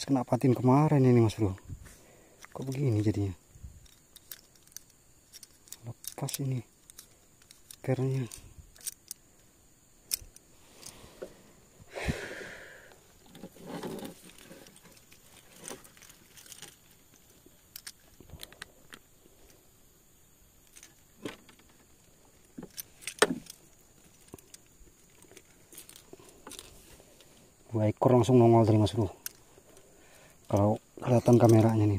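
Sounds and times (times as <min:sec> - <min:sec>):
fishing reel metal clicks: 0:03.8 - 0:09.2, 0:15.9 - 0:19.0, 0:29.2 - 0:29.4.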